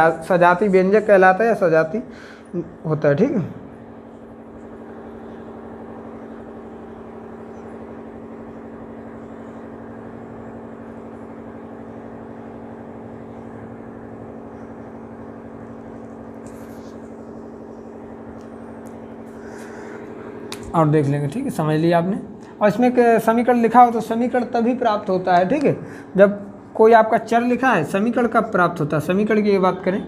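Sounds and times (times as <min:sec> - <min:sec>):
steady mechanical hum: 0:00.0 - 0:30.0.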